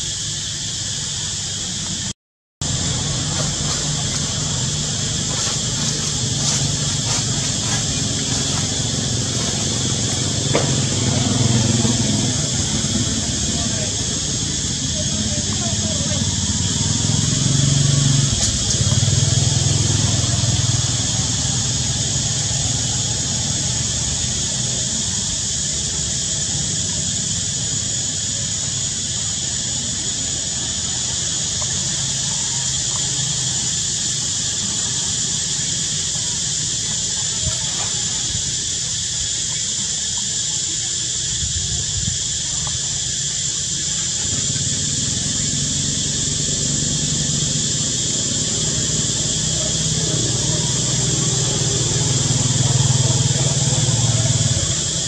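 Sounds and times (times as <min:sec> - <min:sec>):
insect chorus: 0:00.0 - 0:55.0
vehicle engine humming: 0:00.7 - 0:55.0
low continuous rumble: 0:02.6 - 0:16.9.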